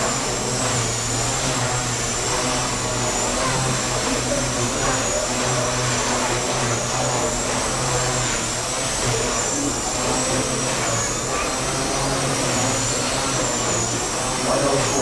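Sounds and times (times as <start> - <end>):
electric motor whine: 0.0 - 15.0
rotor hum: 0.0 - 15.0.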